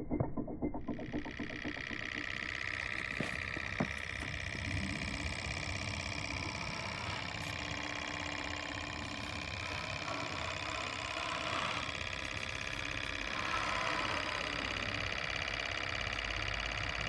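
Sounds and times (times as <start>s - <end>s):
stirling engine ticking: 0.8s - 17.0s.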